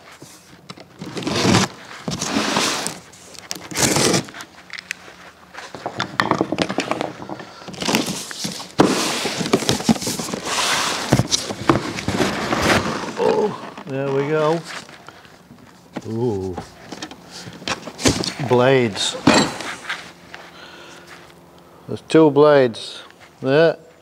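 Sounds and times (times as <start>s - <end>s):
cardboard clicks and scrapes: 0.1s - 4.7s, 6.6s - 13.7s
packing tape tearing: 0.4s - 5.0s, 7.7s - 15.2s.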